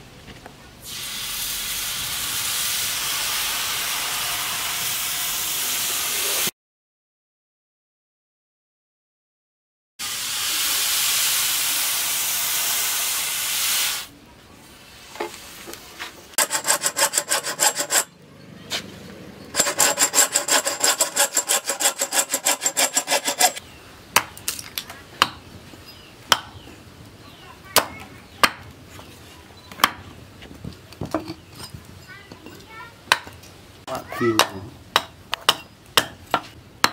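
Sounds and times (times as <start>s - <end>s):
steady hiss: 0.8s - 6.5s, 10.0s - 16.4s
bow saw cutting wood: 16.4s - 18.1s, 19.5s - 23.6s
hatchet chopping wood: 25.2s - 25.4s, 26.3s - 26.6s, 27.8s - 28.7s, 29.8s - 30.0s, 33.1s - 33.4s, 34.4s - 36.9s.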